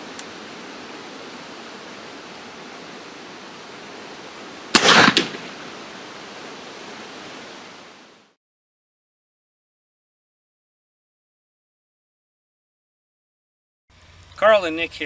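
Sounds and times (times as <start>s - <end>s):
steady outdoor hiss: 0.0s - 8.4s, 13.9s - 15.0s
air rifle shot: 4.7s - 5.8s.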